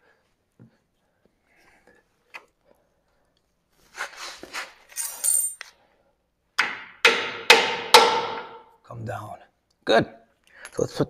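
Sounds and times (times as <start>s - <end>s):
metal tools clinking and scraping: 4.9s - 5.7s.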